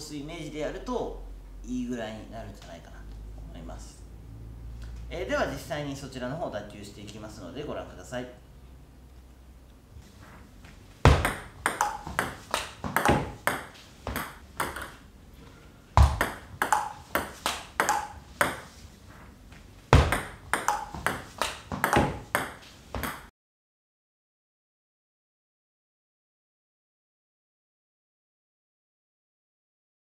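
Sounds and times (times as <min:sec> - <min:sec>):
table tennis ball clicking: 0:11.2 - 0:15.0, 0:16.0 - 0:18.7, 0:20.1 - 0:23.3.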